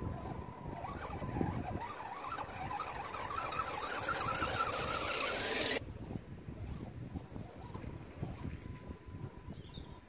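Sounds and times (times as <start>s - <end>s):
rc truck electric motor whine: 0.0s - 5.8s.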